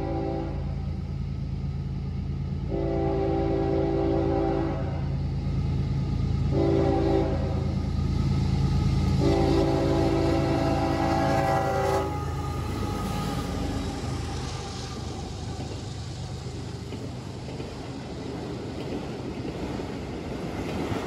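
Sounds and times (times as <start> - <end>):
locomotive air horn: 0.0 - 0.8, 2.7 - 5.2, 6.5 - 7.7, 9.2 - 14.1
low rumble of train: 0.0 - 21.0.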